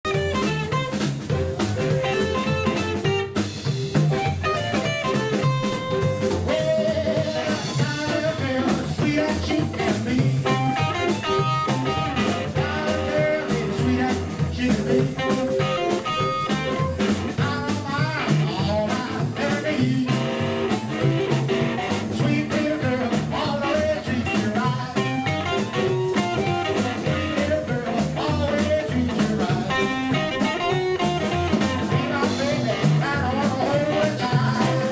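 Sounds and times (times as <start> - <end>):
drum kit: 0.0 - 34.9
electric guitar: 0.0 - 34.9
amplified harmonica: 0.1 - 7.9, 10.5 - 13.2, 15.6 - 17.2, 25.1 - 27.6
double bass: 0.1 - 34.9
man singing: 6.2 - 20.9, 21.9 - 34.9.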